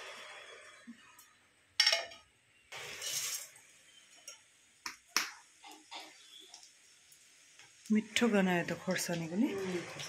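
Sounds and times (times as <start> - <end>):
kitchen utensils clinking: 1.8 - 2.3
ladle scraping in a wok: 2.8 - 4.4.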